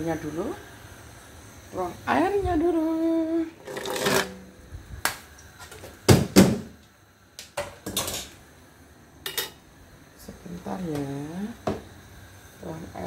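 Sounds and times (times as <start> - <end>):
kitchen things clattering: 3.6 - 4.4, 7.6 - 8.4.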